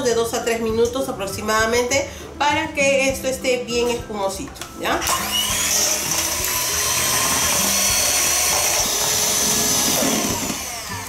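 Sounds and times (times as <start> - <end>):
electric hand mixer whipping: 4.9 - 11.0.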